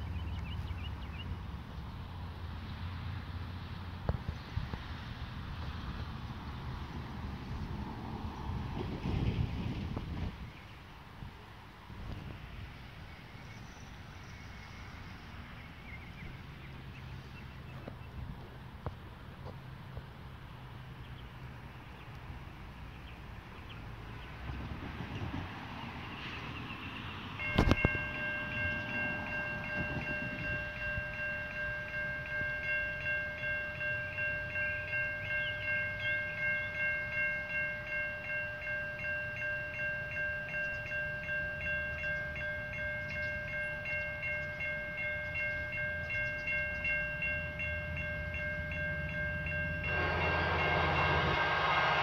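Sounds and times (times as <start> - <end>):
diesel locomotive engine rumble: 0.0 - 52.0
railroad crossing bell ringing: 25.7 - 52.0
train horn: 49.4 - 52.0.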